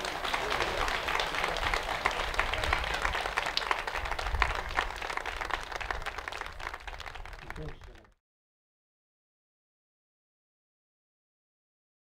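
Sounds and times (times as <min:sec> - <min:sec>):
crowd applauding: 0:00.0 - 0:08.1.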